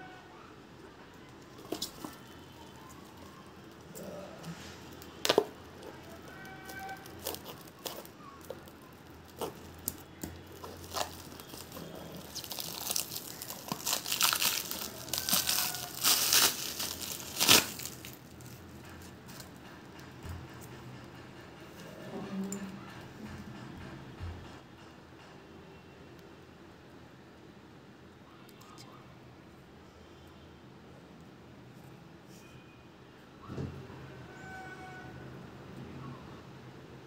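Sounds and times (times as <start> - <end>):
plastic wrap crinkling and tearing: 1.5 - 19.5.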